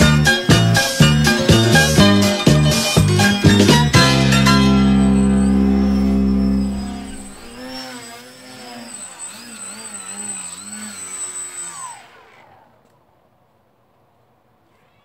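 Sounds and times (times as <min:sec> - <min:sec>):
music: 0:00.0 - 0:07.4
model plane motor whining: 0:00.0 - 0:13.1.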